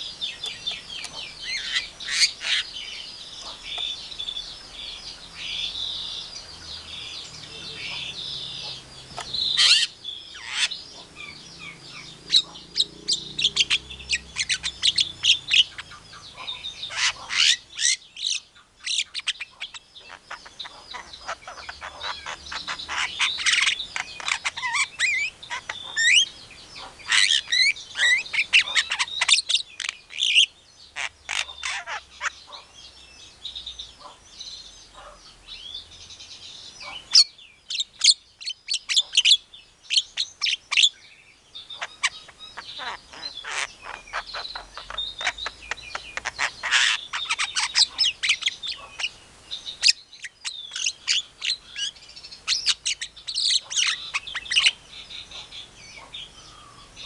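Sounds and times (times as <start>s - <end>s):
bird singing chirps and whistles: 0.0s - 26.3s, 36.8s - 57.0s.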